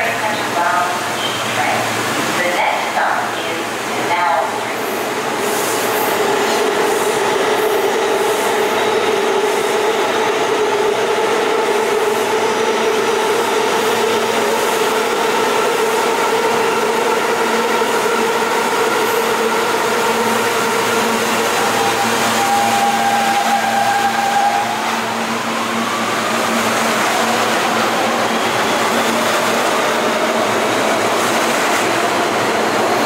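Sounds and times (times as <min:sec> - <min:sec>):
train hum with whining tone: 0:00.0 - 0:33.0.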